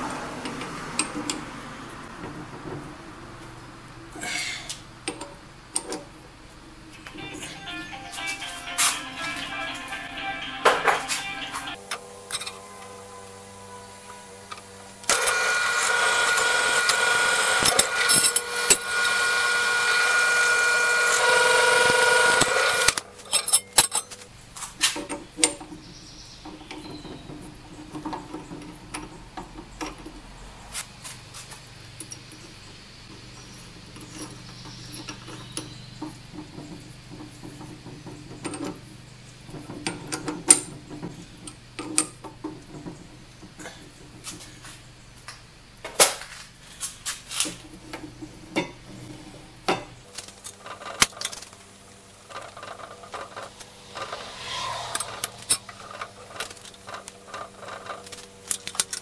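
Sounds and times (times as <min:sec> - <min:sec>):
low hum: 0:11.5 - 0:24.2, 0:50.1 - 0:58.8
drill press whining: 0:11.7 - 0:24.3, 0:50.1 - 0:59.0.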